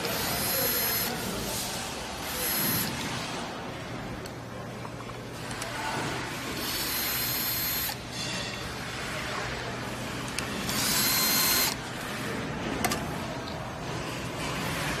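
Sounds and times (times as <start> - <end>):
cordless drill whining: 0.1 - 1.2, 2.3 - 2.9, 6.6 - 8.0, 10.7 - 11.8.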